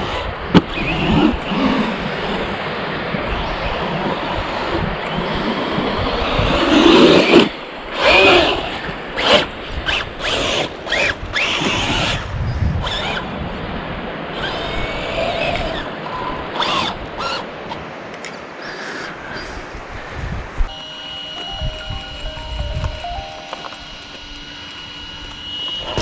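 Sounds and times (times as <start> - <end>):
electric motor whining: 0.0 - 13.3, 20.7 - 26.0.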